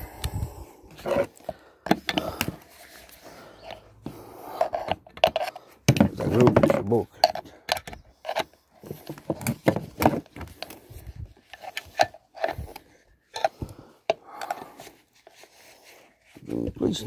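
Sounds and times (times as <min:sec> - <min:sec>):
metal tool clicking and scraping: 0:04.6 - 0:06.4, 0:07.1 - 0:09.1.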